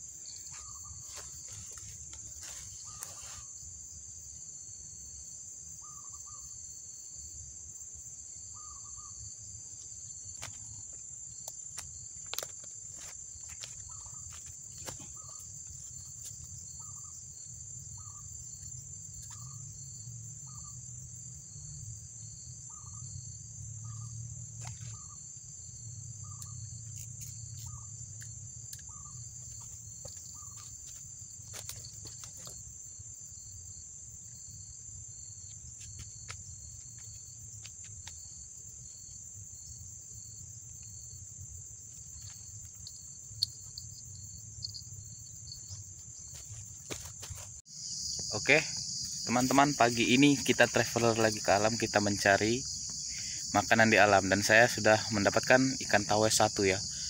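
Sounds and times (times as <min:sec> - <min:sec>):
crickets trilling: 0:00.0 - 0:57.0
bird calling: 0:28.9 - 0:30.7.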